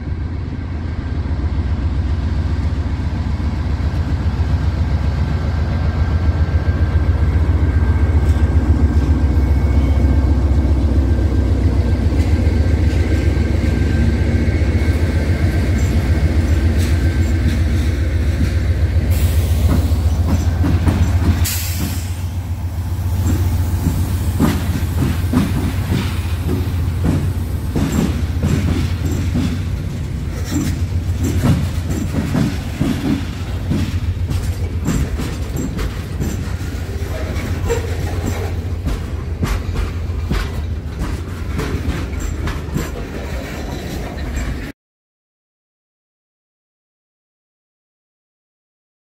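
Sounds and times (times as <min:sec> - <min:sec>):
freight train rumbling: 0:00.0 - 0:44.7
wheels clicking over rail joints: 0:23.2 - 0:44.7.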